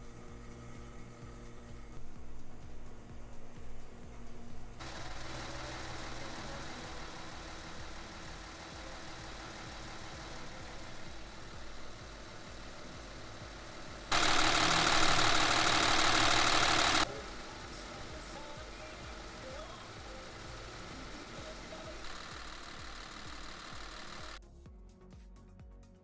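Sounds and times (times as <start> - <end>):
machine humming: 0.0 - 24.4
loud hiss: 4.8 - 24.4.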